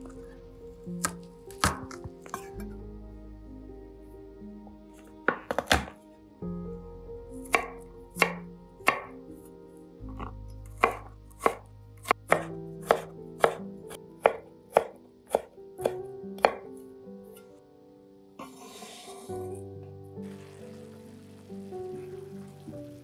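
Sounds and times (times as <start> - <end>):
knife chopping on wooden board: 5.3 - 6.0, 10.2 - 13.6, 14.2 - 16.6.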